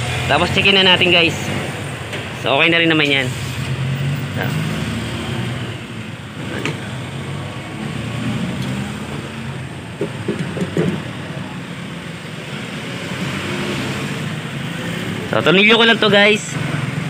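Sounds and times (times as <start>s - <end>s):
metal knocks: 10.0s - 11.1s.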